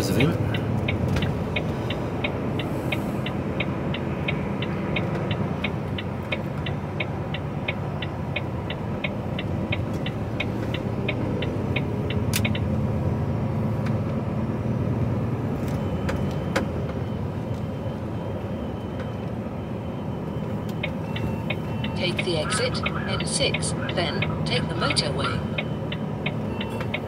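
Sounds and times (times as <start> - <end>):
truck engine and tyre rumble: 0.0 - 27.0
warning beeper pipping: 15.8 - 27.0.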